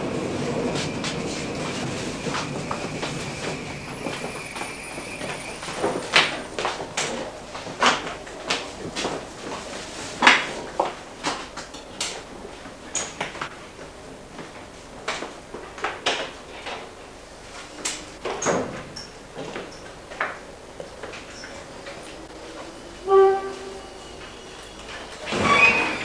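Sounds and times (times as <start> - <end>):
knocks and rattles in train carriage: 0.0 - 16.9
brief high squeaks: 23.1 - 26.0.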